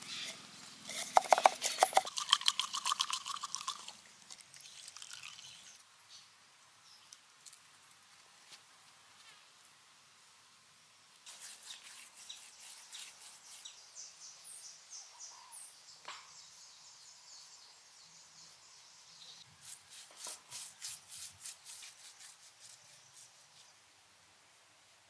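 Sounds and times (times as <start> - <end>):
paintbrush scratching on roof: 0.1 - 2.3, 11.2 - 13.8, 19.6 - 23.7.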